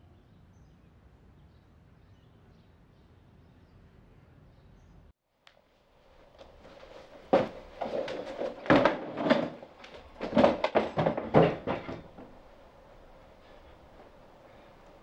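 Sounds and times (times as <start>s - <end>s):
household things knocking and clattering: 6.4s - 12.7s.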